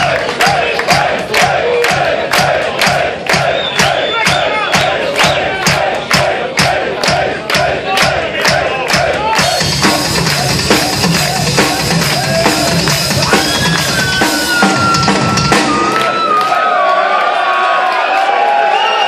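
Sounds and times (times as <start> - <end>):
bass drum beats: 0.0 - 16.3
crowd shouting: 0.0 - 19.0
rock drum kit: 8.5 - 16.3.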